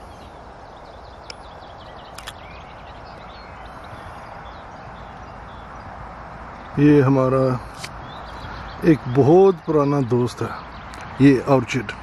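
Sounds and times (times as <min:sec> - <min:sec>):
small birds chirping: 0:00.0 - 0:12.0
sharp clicks: 0:02.1 - 0:02.4.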